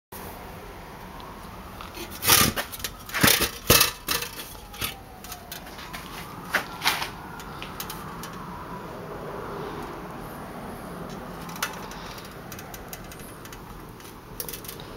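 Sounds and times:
handling knocks and rustles: 0:01.8 - 0:08.4.

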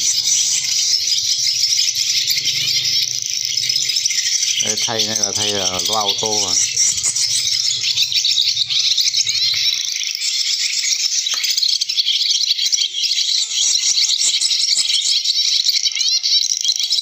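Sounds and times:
low hum: 0:00.0 - 0:09.9
swallow twittering from speaker: 0:00.0 - 0:17.0.

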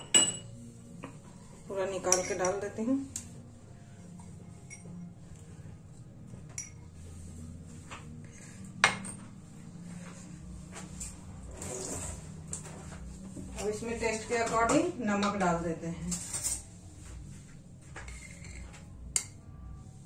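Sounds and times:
steel kitchenware clinking: 0:00.0 - 0:00.5, 0:01.9 - 0:02.8.

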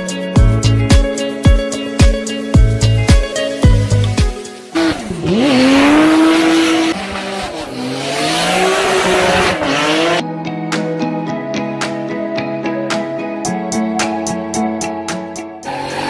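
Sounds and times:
music: 0:00.0 - 0:16.0
car engine revving: 0:04.8 - 0:10.2, 0:15.7 - 0:16.0.

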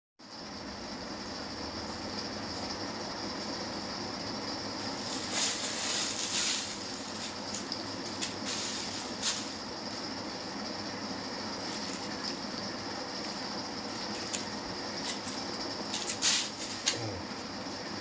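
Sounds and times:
steady background hiss: 0:00.4 - 0:18.0
plastic bag rustling: 0:04.8 - 0:10.2, 0:11.6 - 0:12.5, 0:13.2 - 0:17.0.

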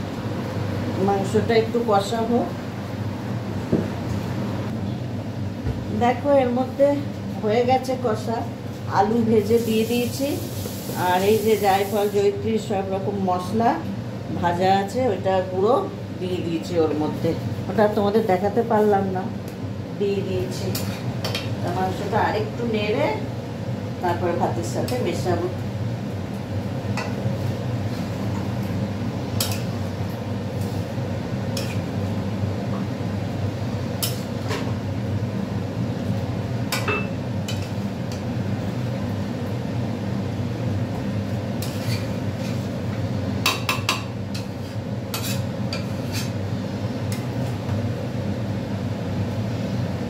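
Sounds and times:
metal spatula scraping pan: 0:41.6 - 0:42.6, 0:44.4 - 0:46.4.

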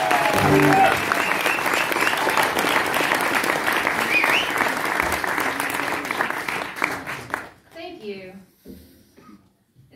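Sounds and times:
audience cheering: 0:00.0 - 0:05.0
audience applauding: 0:00.0 - 0:07.6.

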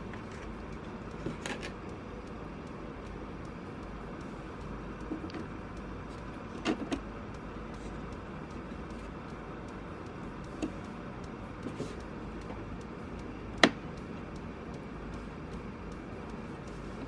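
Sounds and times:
light clicks and taps: 0:00.0 - 0:17.0
steady background noise: 0:00.0 - 0:17.0.

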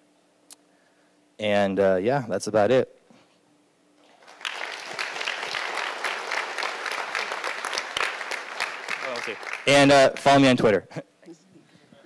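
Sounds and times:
audience applauding: 0:04.1 - 0:10.5.

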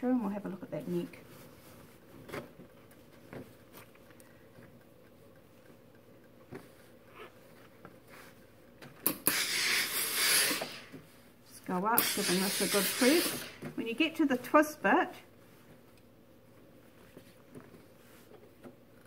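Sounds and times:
steam iron hissing: 0:09.1 - 0:11.1, 0:12.0 - 0:13.7.

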